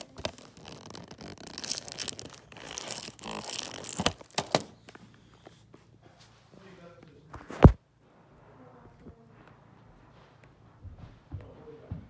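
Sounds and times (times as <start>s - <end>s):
plastic wrapping tearing and crinkling: 0.0s - 4.8s.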